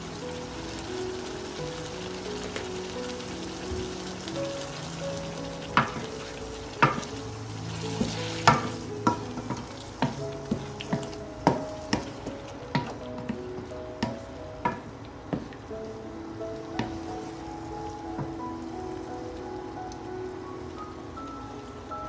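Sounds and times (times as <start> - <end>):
food sizzling in a wok: 0.0 - 22.0
spatula clacking on pan: 5.8 - 6.1, 6.8 - 7.2, 8.0 - 13.3.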